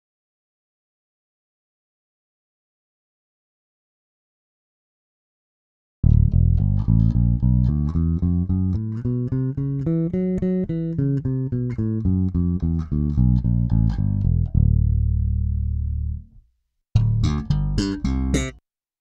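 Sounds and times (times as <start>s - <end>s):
electric bass notes: 6.0s - 16.4s, 17.0s - 18.6s.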